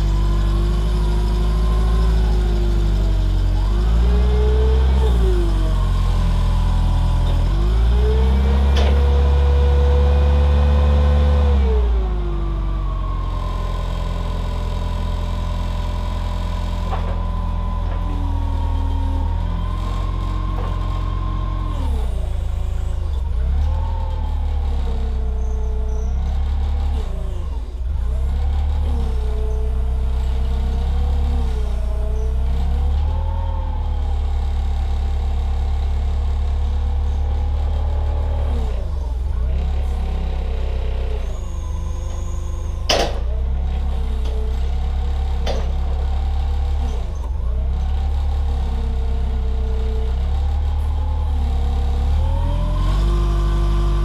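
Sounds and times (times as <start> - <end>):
forklift engine running: 0.0 - 54.0.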